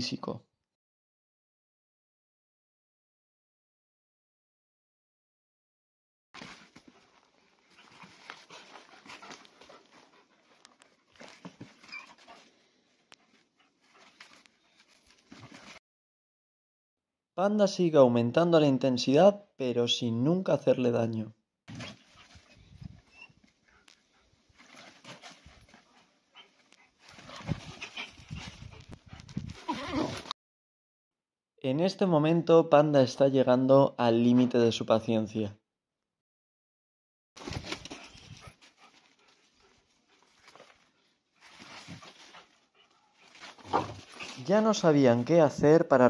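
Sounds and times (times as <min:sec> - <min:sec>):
dogs panting: 0:06.4 - 0:15.8, 0:21.8 - 0:30.3, 0:37.7 - 0:44.5
rustling: 0:06.4 - 0:15.8, 0:21.7 - 0:30.3, 0:37.4 - 0:45.3
dog wavering cry: 0:29.6 - 0:30.3.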